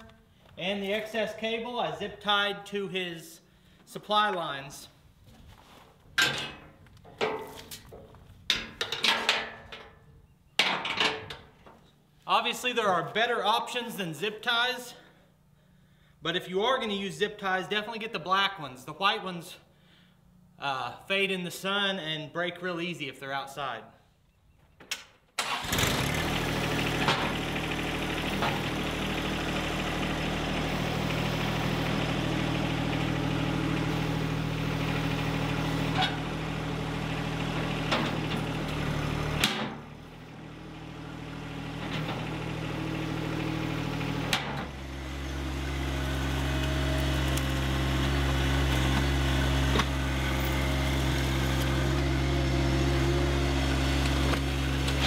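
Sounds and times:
tractor diesel engine running: 25.4s - 55.0s.

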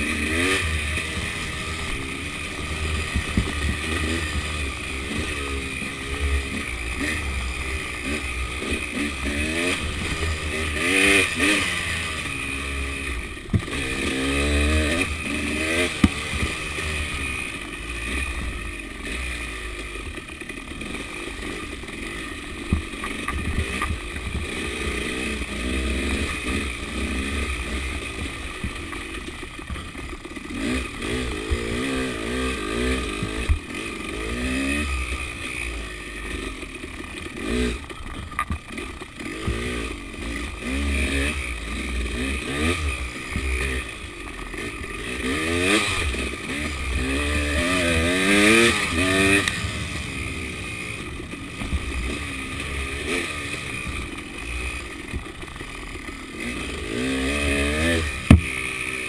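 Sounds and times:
motorcycle engine revving: 0.0s - 59.0s
sharp knocks: 58.2s - 58.6s.

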